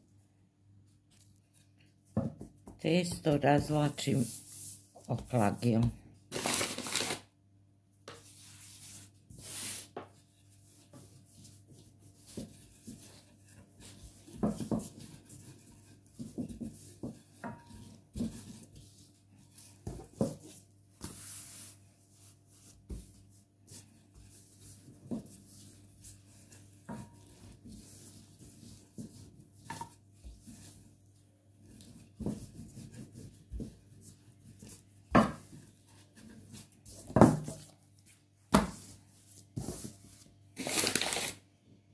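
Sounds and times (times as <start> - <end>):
dough rubbing on cloth: 8.2 - 40.4.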